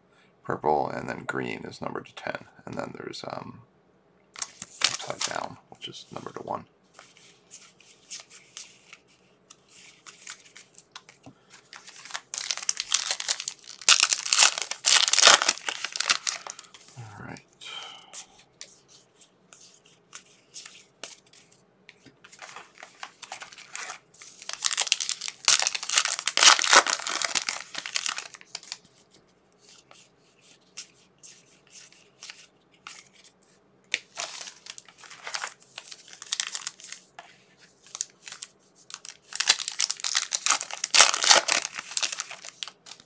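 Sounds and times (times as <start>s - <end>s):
cards being handled: 4.4s - 5.5s, 6.1s - 17.0s, 18.1s - 43.0s
wrapper tearing and crinkling: 4.4s - 5.5s, 11.7s - 16.8s, 22.4s - 28.8s, 34.0s - 37.0s, 37.8s - 43.0s.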